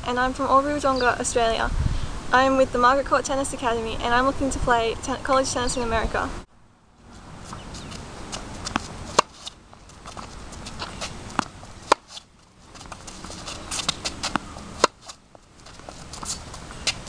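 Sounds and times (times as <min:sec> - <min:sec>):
footsteps on hard court: 0:07.4 - 0:17.0
ball bouncing: 0:07.5 - 0:17.0
tennis racket striking ball: 0:07.5 - 0:17.0.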